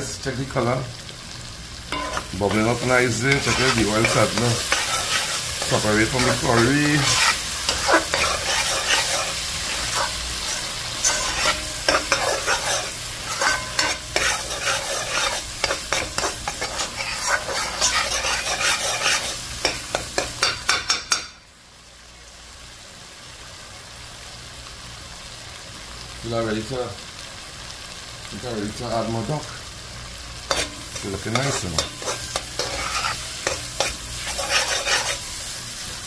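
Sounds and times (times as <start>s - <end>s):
curry sizzling: 0.0s - 36.0s
metal spoon scraping a pot: 1.9s - 20.7s, 30.5s - 35.3s.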